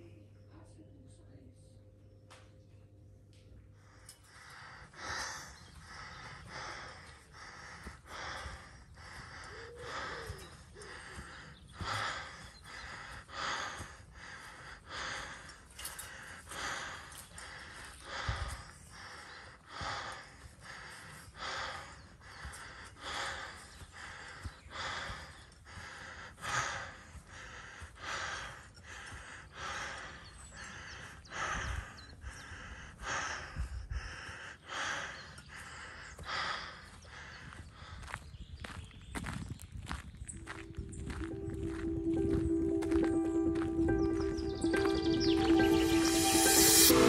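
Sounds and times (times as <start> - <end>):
person breathing hard: 3.8 - 38.3, 40.5 - 47.0
soft low thumps: 39.8 - 45.0.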